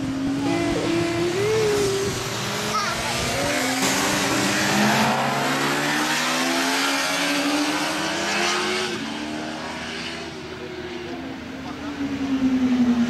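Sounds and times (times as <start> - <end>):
motorcycle engines accelerating past: 0.0 - 13.0.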